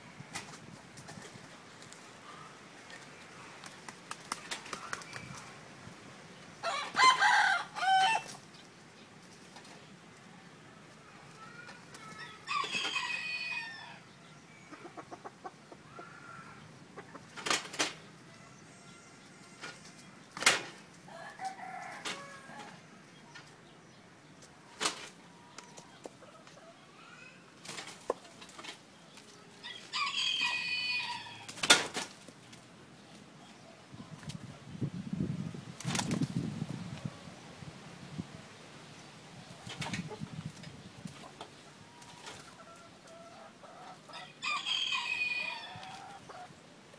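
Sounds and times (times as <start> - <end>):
wings flapping: 2.9 - 5.6, 35.8 - 36.5
roosters crowing: 6.6 - 8.4, 12.1 - 14.6, 18.1 - 20.0, 21.0 - 23.1, 29.5 - 31.8, 41.8 - 46.5.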